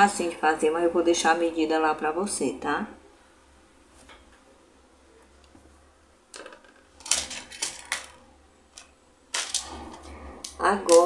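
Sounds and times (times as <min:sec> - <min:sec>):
objects clicking on tiled worktop: 0:06.3 - 0:11.0.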